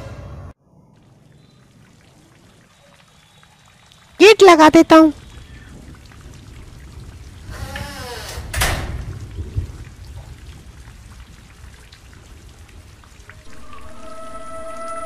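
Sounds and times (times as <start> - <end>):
steady rain: 1.0 - 15.0
door creaking shut and banging: 7.5 - 9.2.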